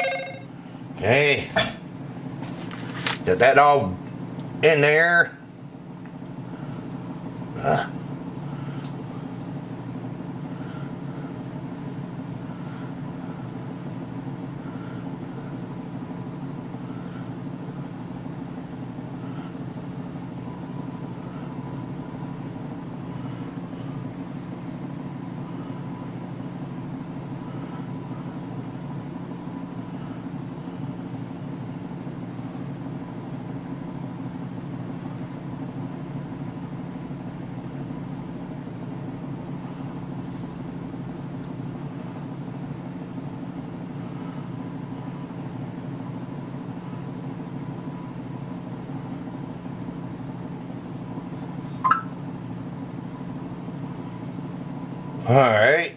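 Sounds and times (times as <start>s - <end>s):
faint thin high tone: 0.0s - 0.5s, 51.8s - 52.2s
low mechanical hum: 0.0s - 55.9s.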